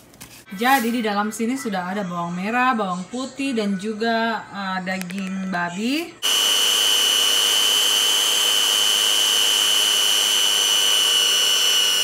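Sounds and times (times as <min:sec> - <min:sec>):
blender motor whining: 0:06.2 - 0:12.0.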